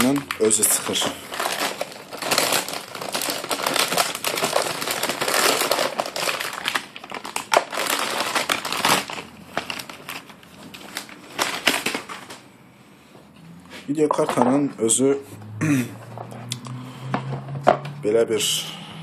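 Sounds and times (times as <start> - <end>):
plastic bag crinkling: 0.0 - 12.5.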